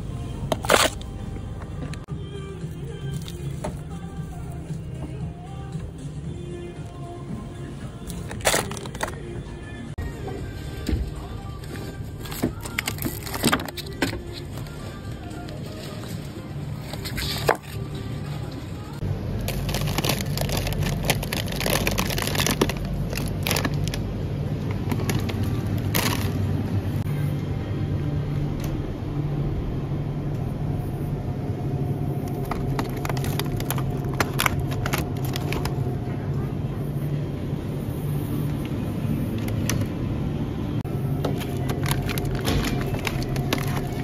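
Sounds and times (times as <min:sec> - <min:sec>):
steady low hum: 0:00.0 - 0:44.0
plastic bag crinkling: 0:19.4 - 0:24.0, 0:24.8 - 0:26.5, 0:32.3 - 0:35.9, 0:41.4 - 0:44.0.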